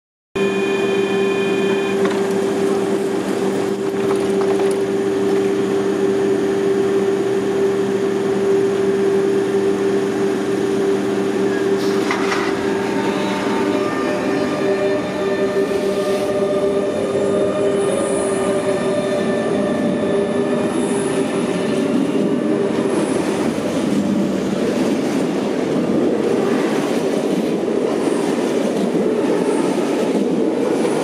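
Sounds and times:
high steady tone: 0.4 - 3.2
train electrical hum: 0.4 - 31.0
train doors closing clunk: 1.6 - 5.5, 11.5 - 13.7.

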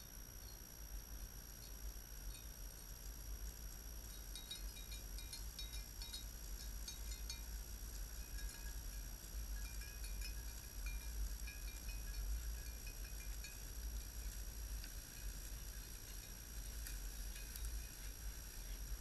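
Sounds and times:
goat bells tinkling: 4.0 - 19.0.

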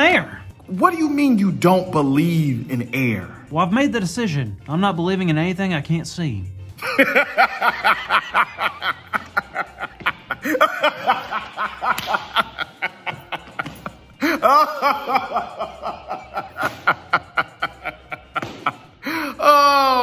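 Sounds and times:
man laughing hard: 6.8 - 20.0.

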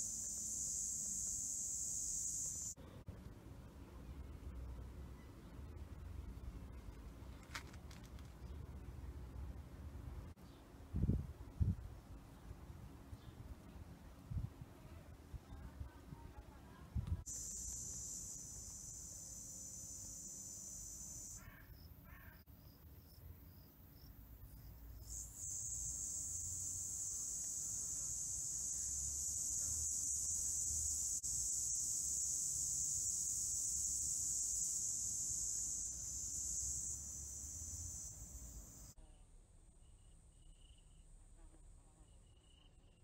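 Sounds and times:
high-pitched buzzing hiss: 0.0 - 2.8, 17.0 - 21.5, 24.9 - 39.2.

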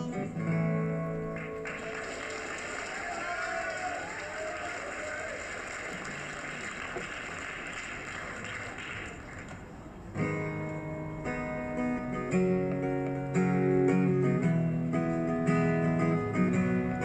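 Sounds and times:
acoustic guitar strumming chords: 0.0 - 2.0, 10.2 - 17.0.

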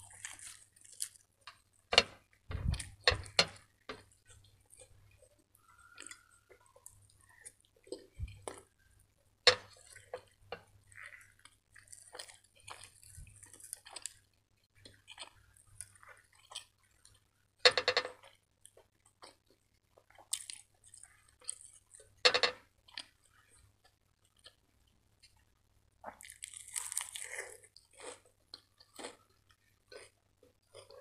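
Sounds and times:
crisp lettuce crunches: 0.0 - 1.3, 26.1 - 28.3
wet chewing and mouth smacks: 18.2 - 22.2, 26.0 - 31.0.

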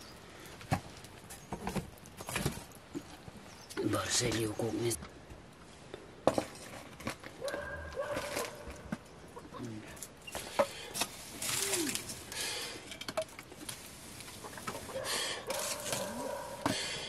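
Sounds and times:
fire hissing: 10.0 - 17.0
firewood sticks knocking: 12.8 - 16.9.

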